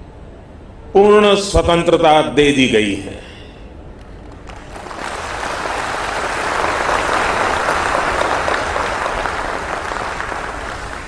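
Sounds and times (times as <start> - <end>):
large audience applauding: 4.2 - 11.0.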